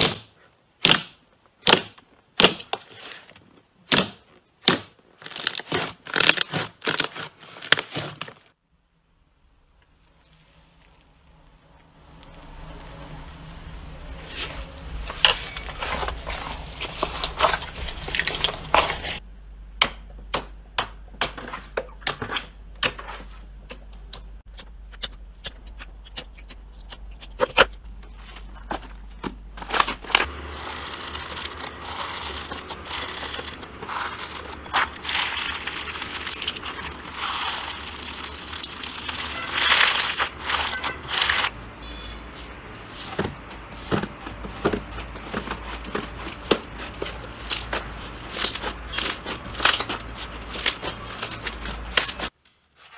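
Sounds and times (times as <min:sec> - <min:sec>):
crinkly slime crackle: 0:05.2 - 0:08.6, 0:15.3 - 0:19.2, 0:28.1 - 0:52.9.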